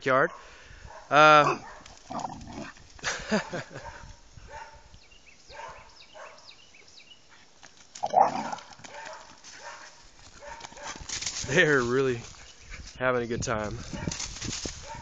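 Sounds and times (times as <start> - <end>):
dog barking: 0.2 - 1.9, 3.5 - 4.8, 5.5 - 6.5, 8.2 - 11.0, 14.0 - 14.2
dogs scrambling through brush: 7.4 - 13.0, 13.7 - 15.0.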